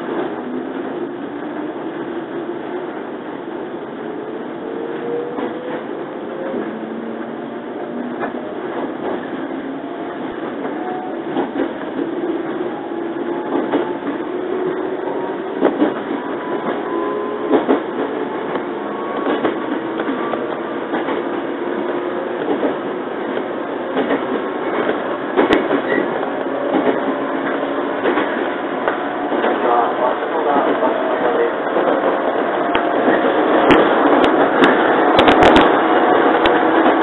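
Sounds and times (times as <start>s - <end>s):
train traction motors whining: 4.0s - 37.0s
wheels clicking over rail joints: 10.4s - 12.2s.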